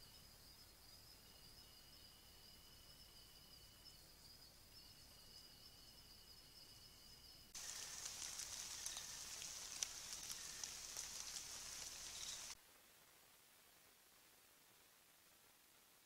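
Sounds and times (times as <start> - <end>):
high insect trills: 0.0 - 12.6
dense high hiss with ticks: 0.0 - 16.0.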